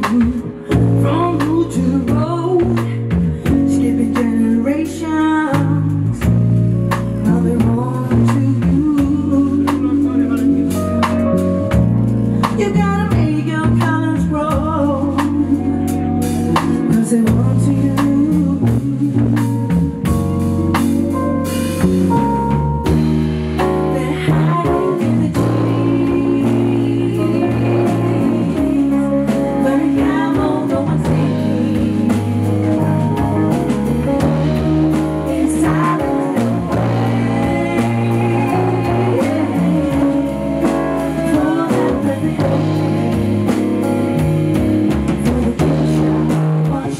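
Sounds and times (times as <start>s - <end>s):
drum kit: 0.0s - 46.9s
electric guitar: 0.0s - 46.9s
person singing: 23.9s - 33.6s, 34.2s - 46.9s.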